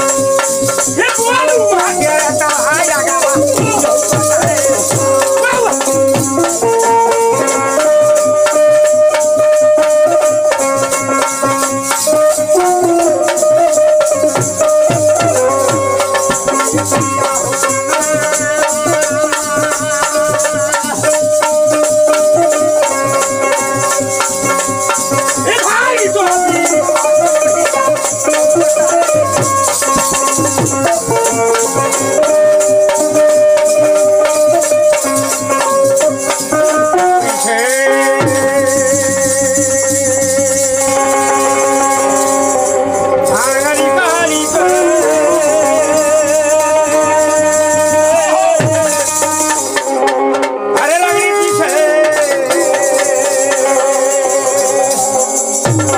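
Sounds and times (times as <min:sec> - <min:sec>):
hand drum: 0:00.0 - 0:55.9
harmonium: 0:00.0 - 0:55.9.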